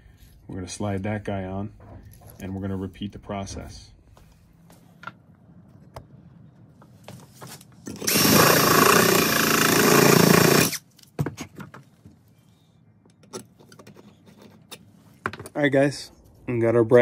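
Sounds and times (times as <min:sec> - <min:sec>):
power tool running: 0:07.9 - 0:10.8
clicks and knocks of parts handled: 0:13.0 - 0:15.6.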